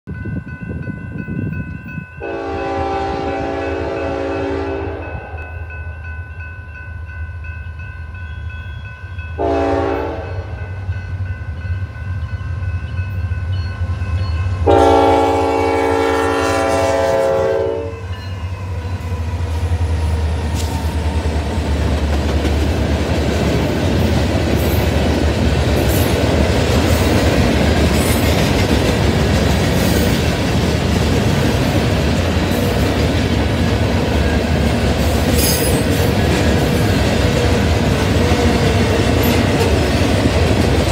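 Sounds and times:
diesel locomotive engine rumble: 0.1 - 40.9
train air horn blasts: 2.2 - 5.6, 9.4 - 10.8, 14.6 - 18.2
train wheels clacking on rails: 18.2 - 40.9.

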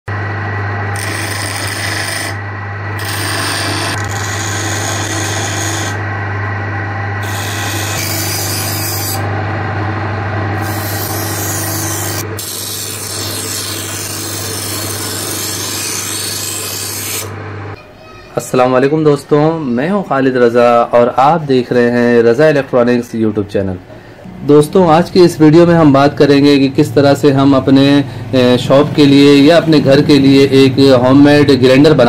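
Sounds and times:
electric motor humming: 0.4 - 17.4
knife grinding on stone: 1.0 - 2.4, 7.2 - 9.2, 10.6 - 17.3.

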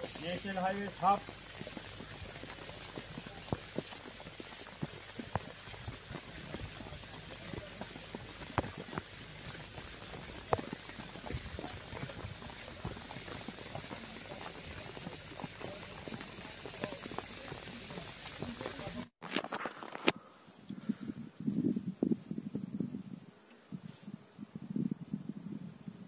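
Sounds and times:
small crackles and taps: 8.4 - 9.1, 10.1 - 11.0.

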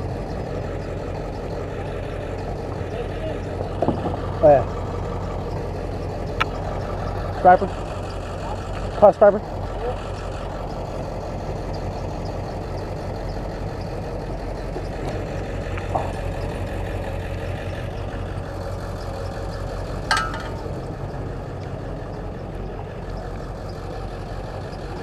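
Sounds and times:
truck engine idling: 0.0 - 25.0
sharp knock with ring: 20.1 - 20.7.

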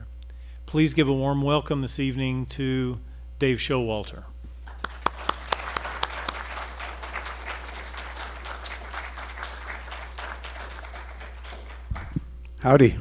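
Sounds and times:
audience applauding: 4.6 - 12.3.

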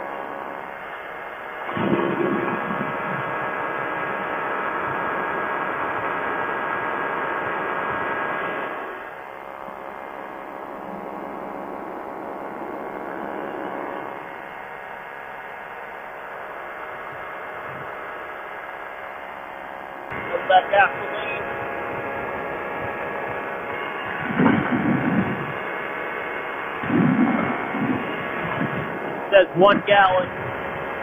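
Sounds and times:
light aircraft engine and propeller drone: 0.0 - 31.0
rushing wind: 0.2 - 9.1, 20.1 - 31.0.

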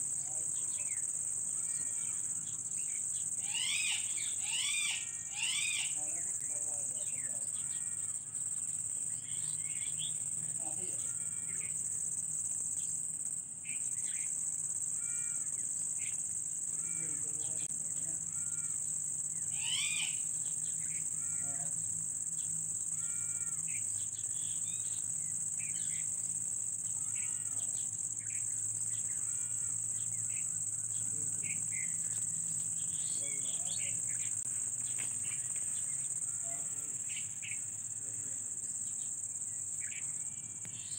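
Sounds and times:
insects droning in chorus: 0.0 - 40.9
rising bird call: 3.4 - 6.0, 19.5 - 20.2.

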